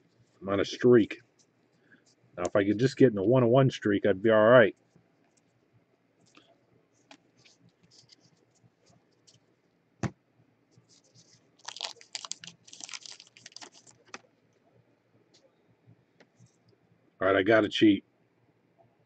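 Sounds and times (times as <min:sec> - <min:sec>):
cards clicking and scraping: 0:10.9 - 0:14.3
plastic packaging rustling: 0:10.9 - 0:14.3.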